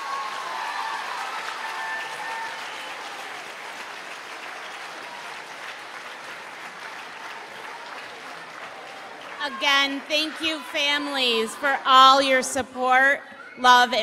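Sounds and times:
audience applauding: 0.0 - 11.2.

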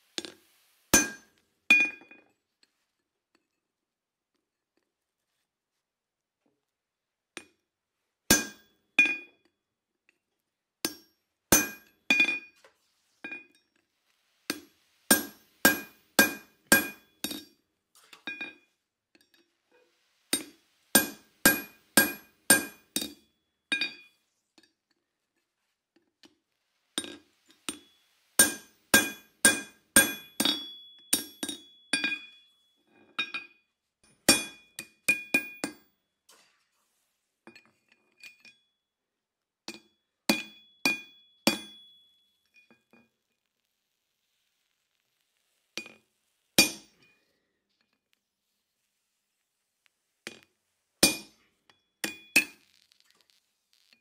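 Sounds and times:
hammer striking chisel on metal: 1.0 - 2.0, 8.3 - 9.3, 10.8 - 12.5, 14.5 - 17.5, 20.3 - 24.1, 27.0 - 32.4, 34.3 - 35.8, 39.7 - 42.1, 46.6 - 47.0, 51.0 - 51.4.

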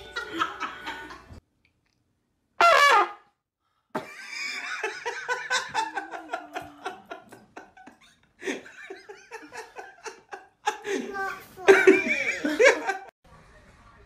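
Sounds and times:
continuous laughter: 4.0 - 11.1.

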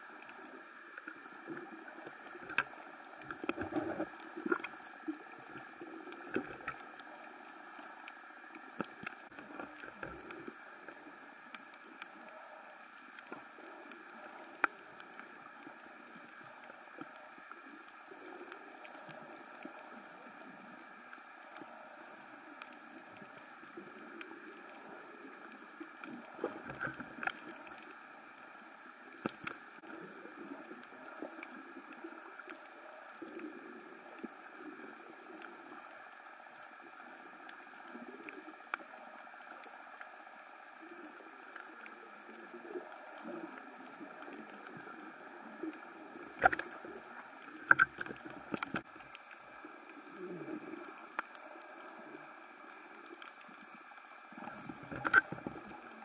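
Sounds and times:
muffled underwater hiss: 0.0 - 56.0
underwater clicks and crackles: 0.0 - 56.0.

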